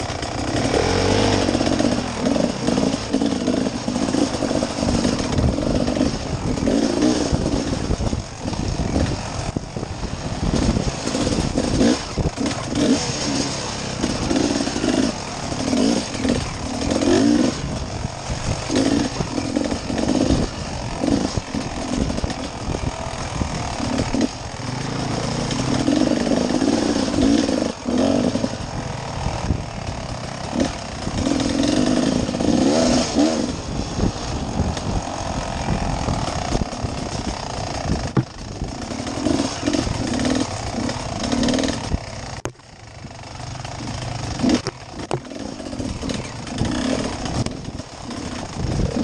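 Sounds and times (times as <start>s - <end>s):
dirt bike engine revving: 0.0s - 49.0s
bike knocking over bumps: 38.0s - 38.6s.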